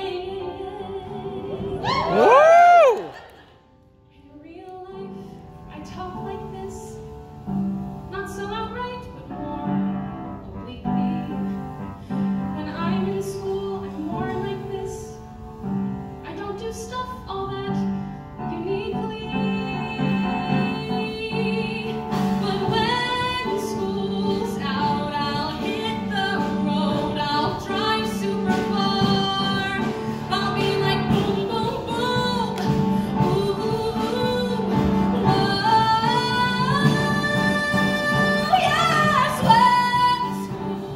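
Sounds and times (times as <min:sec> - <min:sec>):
woman singing into microphone: 0:00.0 - 0:03.0, 0:12.6 - 0:15.2, 0:16.2 - 0:40.9
piano playing repeated chords: 0:05.0 - 0:40.9.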